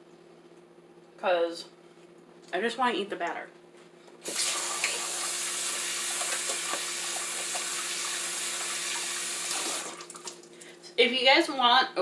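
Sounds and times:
faucet running into sink: 4.2 - 10.5.

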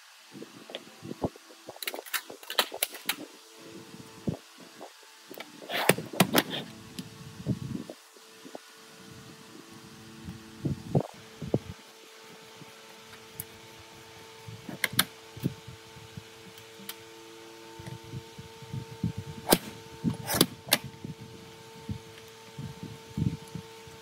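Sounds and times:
steady hum: 0.0 - 24.0
sharp clicks: 14.8 - 15.1.

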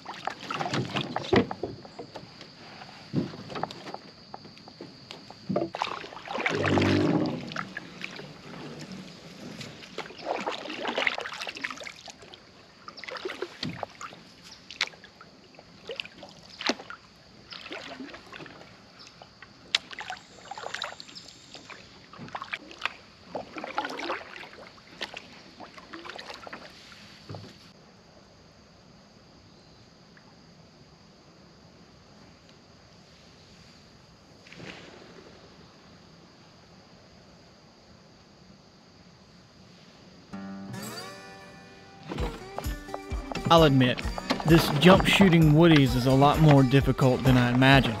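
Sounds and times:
paddle strokes swishing water: 0.0 - 4.0, 5.2 - 27.8, 42.2 - 48.0
paddle knocking on hull: 5.4 - 5.9, 42.1 - 48.0.

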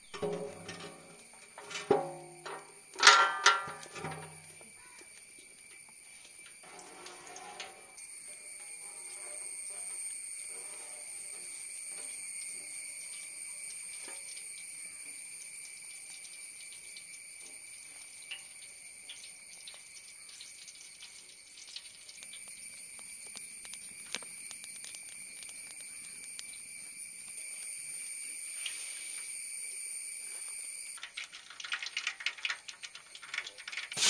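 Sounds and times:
oil trickling into a pot: 0.1 - 8.6, 9.8 - 28.8, 31.0 - 34.0.

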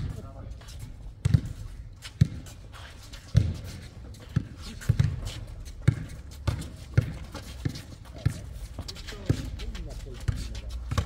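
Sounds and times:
basketball bouncing on hard court: 1.2 - 2.5, 4.3 - 8.5, 10.2 - 11.0.

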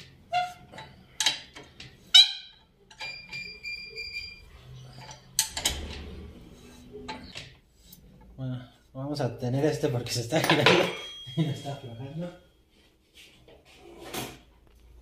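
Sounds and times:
metal tools clinking: 10.3 - 12.3.

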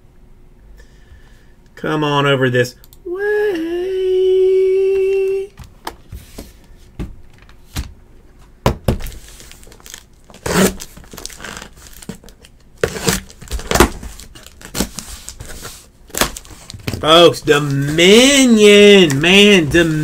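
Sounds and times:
packaging tearing and crinkling: 9.0 - 20.0.

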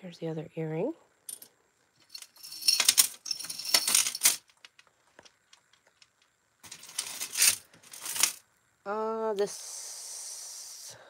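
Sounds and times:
metal jewelry jangling against glass: 1.3 - 4.4.

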